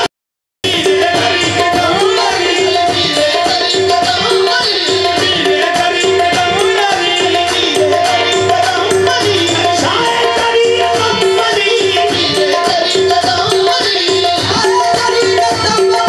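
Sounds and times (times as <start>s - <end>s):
rhythmic percussion: 0.0s - 16.0s
tabla beat: 0.0s - 16.0s.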